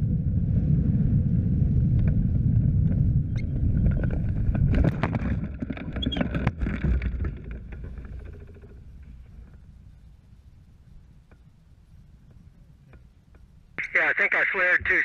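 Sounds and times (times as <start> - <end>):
wind rushing over microphone: 0.0 - 10.1.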